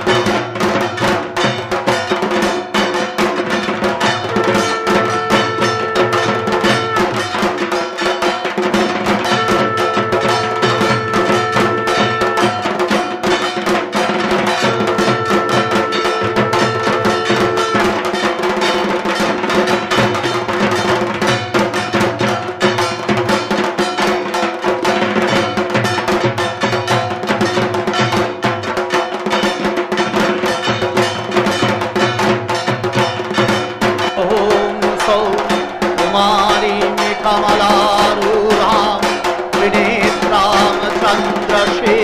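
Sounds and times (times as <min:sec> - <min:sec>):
clacking bell-like strokes: 0:00.0 - 0:42.0
drum-led percussion music: 0:00.0 - 0:42.0
long held note: 0:04.3 - 0:07.3, 0:09.3 - 0:12.8, 0:14.6 - 0:18.3.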